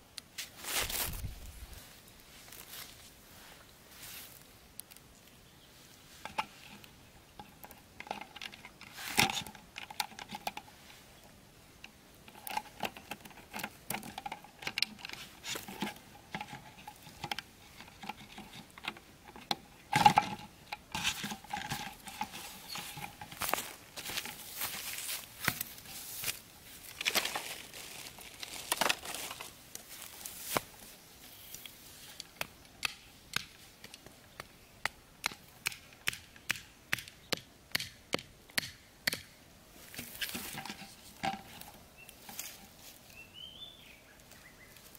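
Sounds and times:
plastic bottle crinkling: 0:12.3 - 0:30.8.

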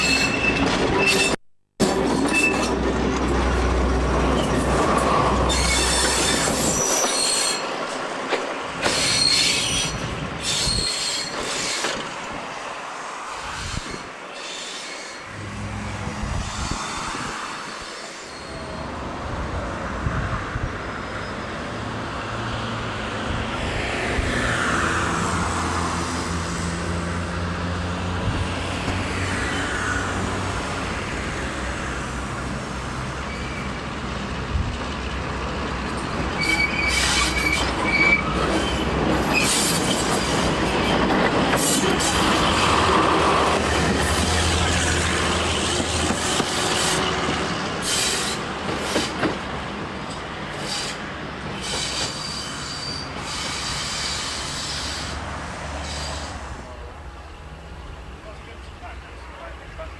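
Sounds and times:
train wheels rumbling on rails: 0:00.0 - 0:12.6, 0:13.3 - 0:59.9
wheel squeal: 0:05.5 - 0:07.7, 0:08.8 - 0:12.0, 0:17.8 - 0:18.9, 0:36.4 - 0:41.9, 0:51.6 - 0:55.1
diesel locomotive engine droning: 0:15.3 - 0:59.9.

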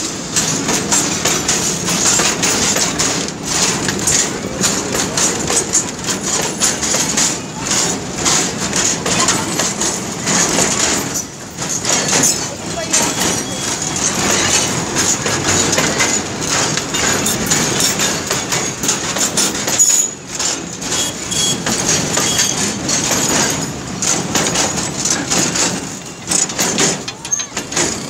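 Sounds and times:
train wheels rumbling on rails: 0:00.0 - 0:28.0
wagons clattering and knocking: 0:00.0 - 0:28.0
high wheel squeals: 0:12.9 - 0:14.7, 0:20.9 - 0:23.3.

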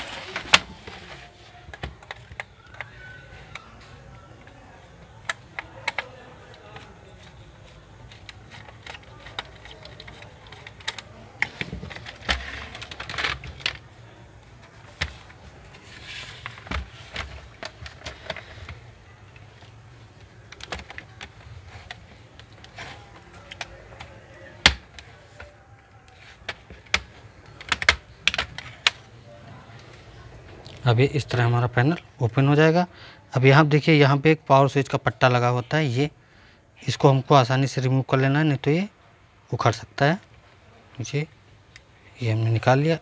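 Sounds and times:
plastic laptop case clicking: 0:05.2 - 0:07.3, 0:08.0 - 0:13.9, 0:14.6 - 0:29.0.

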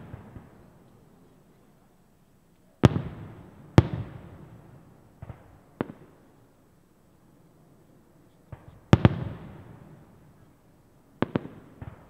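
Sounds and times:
firework bangs: 0:02.8 - 0:06.2, 0:08.5 - 0:10.2, 0:11.2 - 0:12.0.

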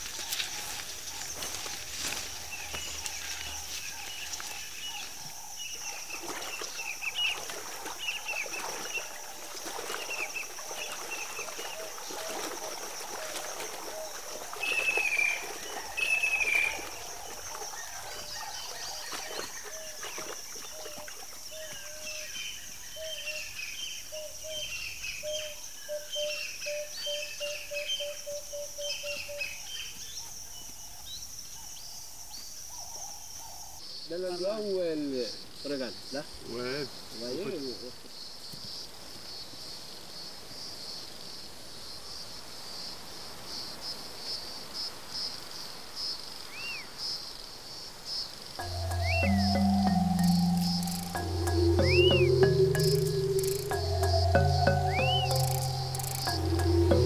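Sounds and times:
birds chirping: 0:48.6 - 0:57.0
descending bird calls: 0:48.6 - 0:57.0
high insect drone: 0:48.6 - 0:57.0
low repeated bird note: 0:48.6 - 0:57.0.

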